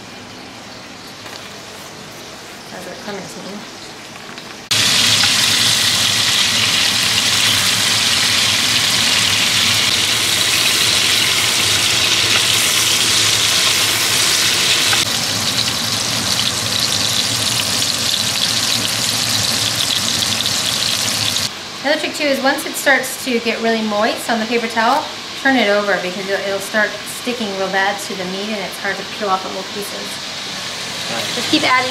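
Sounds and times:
beef sizzling in hot oil: 0:04.7 - 0:21.5.

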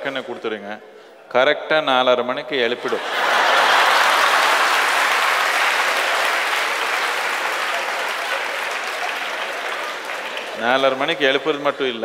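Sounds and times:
audience applauding: 0:02.9 - 0:11.9.

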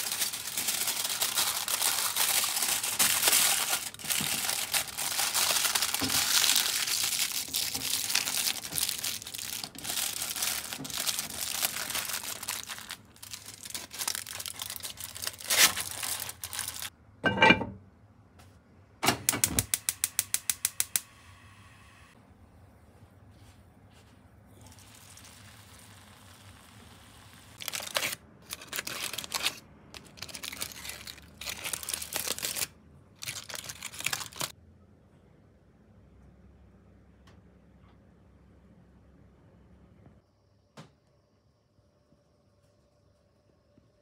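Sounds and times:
aluminium foil crinkling: 0:00.0 - 0:16.9, 0:27.6 - 0:34.5
gas stove igniter clicking: 0:19.0 - 0:21.1.

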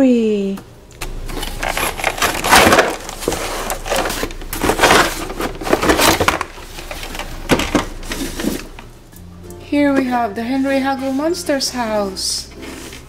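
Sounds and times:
cardboard and plastic scraping: 0:01.2 - 0:08.9.

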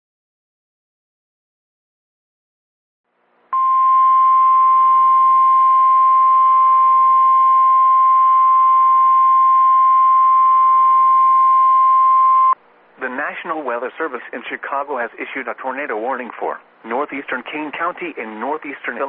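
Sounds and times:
high alarm tone: 0:03.6 - 0:12.6.

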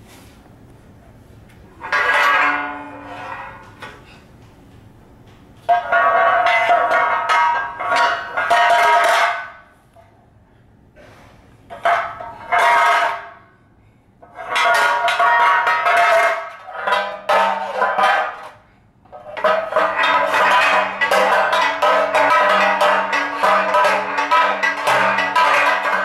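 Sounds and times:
metal pans clanging: 0:01.7 - 0:04.2, 0:05.7 - 0:09.6, 0:14.2 - 0:26.0.

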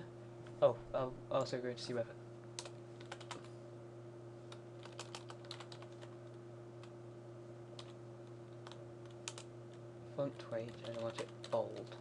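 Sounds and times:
steady low hum: 0:00.0 - 0:12.0
typing on computer keyboard: 0:02.6 - 0:03.5, 0:04.5 - 0:06.1, 0:07.8 - 0:09.5, 0:10.3 - 0:12.0.

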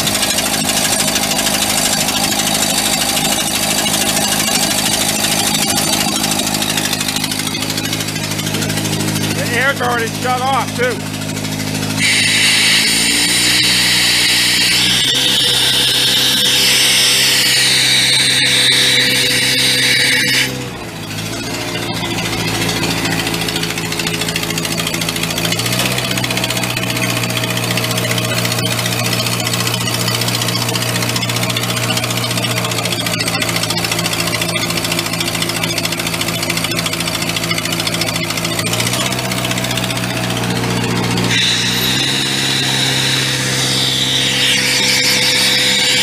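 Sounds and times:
air compressor engine running: 0:00.0 - 0:46.0.

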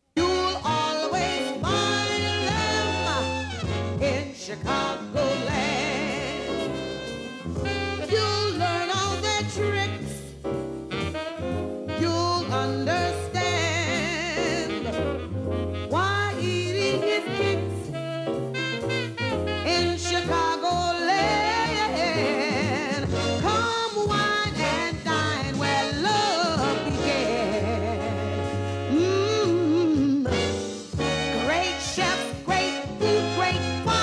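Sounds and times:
brass: 0:00.0 - 0:34.0
steady bass line: 0:00.0 - 0:34.0
person singing: 0:00.2 - 0:07.0, 0:28.9 - 0:31.1.

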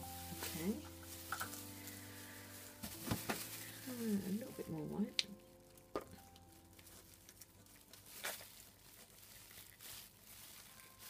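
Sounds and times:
plastic bottle and cups clicking: 0:05.1 - 0:06.3.

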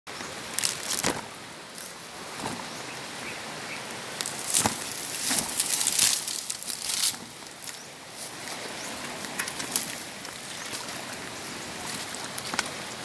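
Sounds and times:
steady background hiss: 0:00.1 - 0:13.0
plants brushing past: 0:04.2 - 0:12.9
footsteps on dirt trail: 0:04.2 - 0:13.0.

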